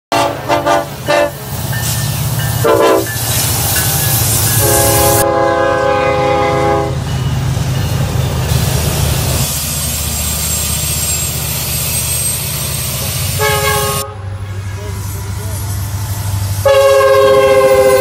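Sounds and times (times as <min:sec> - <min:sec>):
locomotive air horn blasts: 0:00.1 - 0:01.5, 0:02.6 - 0:03.1, 0:04.6 - 0:07.0, 0:13.3 - 0:14.5, 0:16.6 - 0:18.0
diesel engines rumbling: 0:00.1 - 0:18.0.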